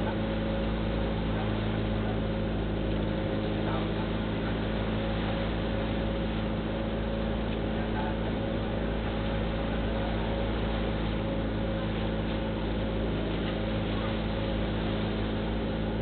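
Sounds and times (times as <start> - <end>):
boat engine running: 0.0 - 16.0
wind and water rushing: 0.0 - 16.0.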